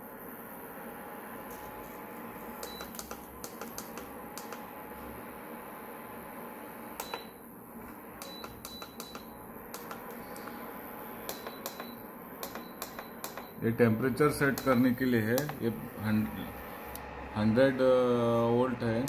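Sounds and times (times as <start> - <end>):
cooling fan whirring: 0.0 - 19.0
push buttons clicking: 2.6 - 4.7, 7.0 - 7.3, 8.2 - 13.6, 14.4 - 15.6.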